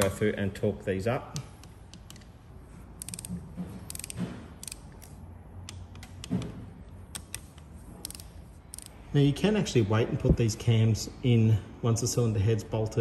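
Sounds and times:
torque wrench ratcheting and clicking: 3.0 - 5.2, 7.1 - 9.0.

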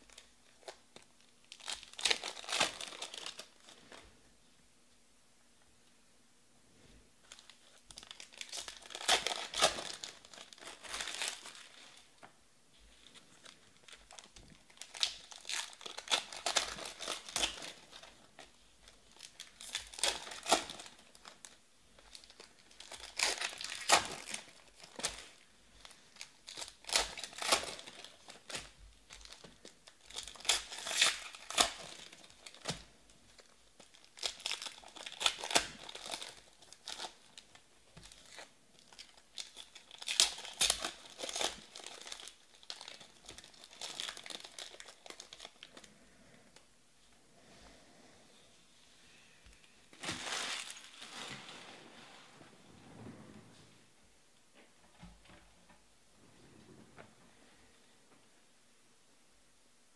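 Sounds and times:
card pack wrappers tearing: 1.5 - 3.7, 7.3 - 12.1, 13.0 - 45.8.

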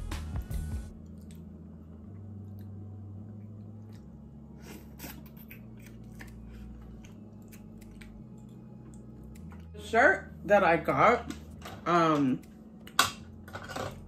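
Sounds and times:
chewing: 1.0 - 1.5, 3.4 - 9.7.

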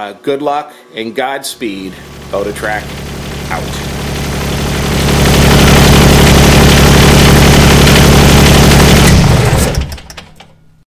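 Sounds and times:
tractor diesel engine running: 2.0 - 10.4.

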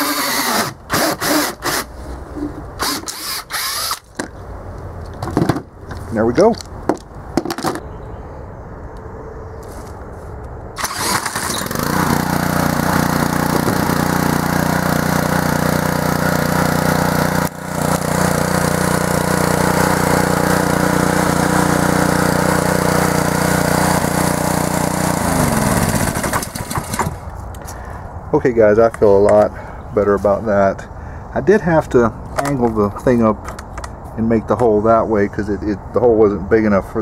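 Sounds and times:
small engine running: 0.0 - 1.8, 2.8 - 4.0, 10.8 - 27.2
cordless drill spinning engine: 0.0 - 1.9, 2.8 - 4.1, 10.8 - 27.2.

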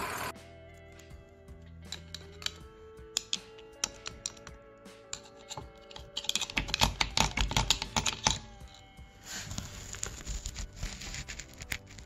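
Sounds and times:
screwdriver rattling against gears: 1.9 - 2.6, 3.2 - 4.5, 5.1 - 12.0.

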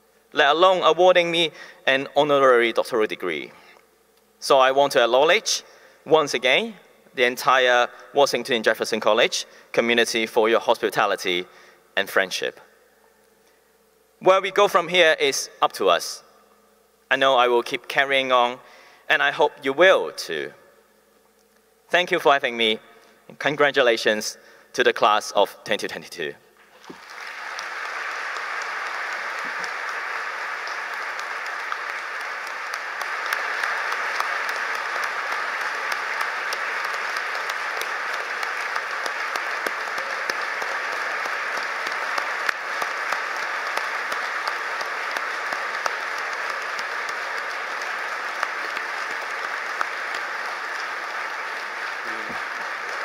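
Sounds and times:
large audience applauding: 26.6 - 53.0.

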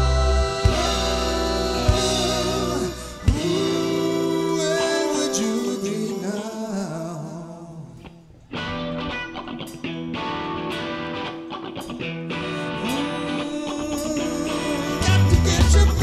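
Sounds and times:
live rock band playing: 0.0 - 6.0, 8.6 - 16.0
person singing: 0.0 - 8.0, 12.5 - 16.0
guitar: 0.0 - 16.0.

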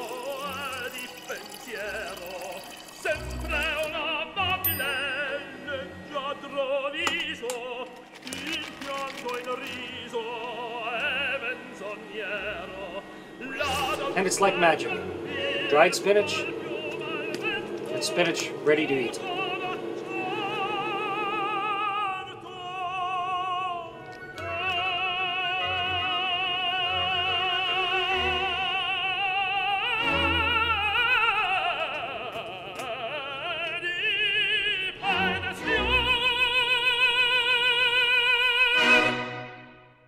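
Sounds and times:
operatic voice singing: 0.0 - 39.4.

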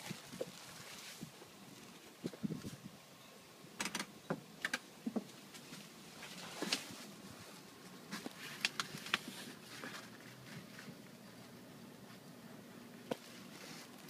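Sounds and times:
leaves rustling against phone: 0.0 - 3.0, 5.2 - 12.4, 13.1 - 14.0.

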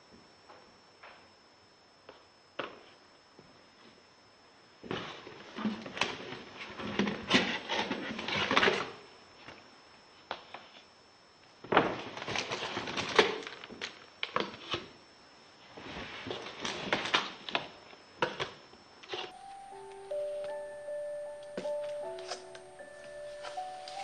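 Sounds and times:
objects being handled: 19.1 - 24.0.

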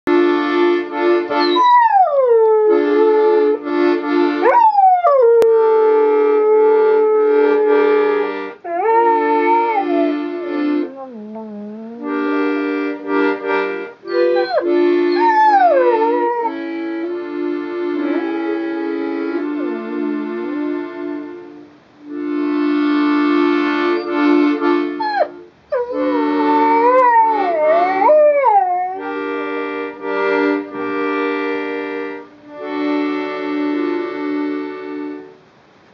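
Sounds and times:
accordion chords: 0.1 - 35.9
dog howling: 1.4 - 3.4, 4.4 - 10.3, 10.9 - 12.0, 14.1 - 16.7, 18.0 - 19.0, 25.0 - 29.0.

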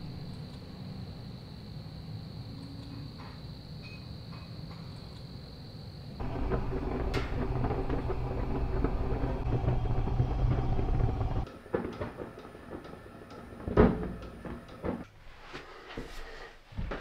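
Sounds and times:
fire rumbling and crackling: 6.2 - 14.9.

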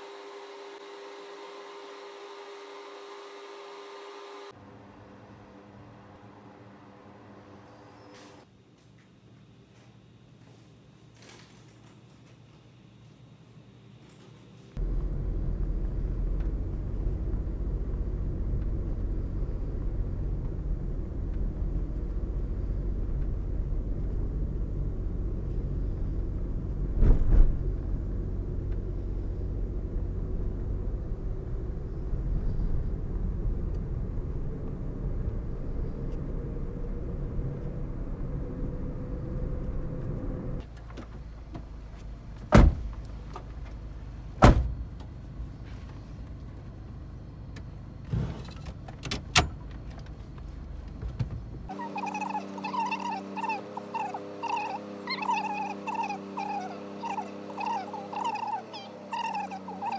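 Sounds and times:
car engine rumbling: 14.8 - 59.9
thump: 27.0 - 27.6, 42.5 - 42.9, 44.4 - 44.8.

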